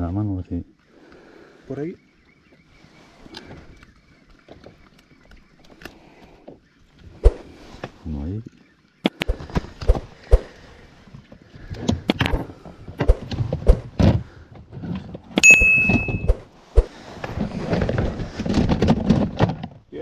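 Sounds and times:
short metallic ring: 0:15.4 - 0:16.3.

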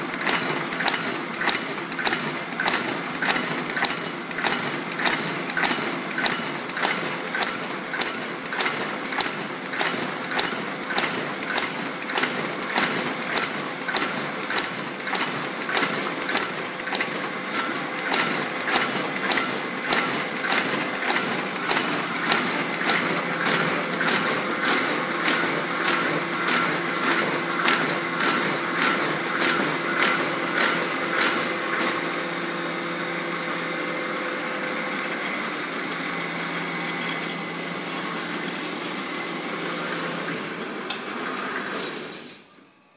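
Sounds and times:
paper folding machine clicking: 0:00.0 - 0:32.3
machine mechanical hum: 0:00.0 - 0:42.9.

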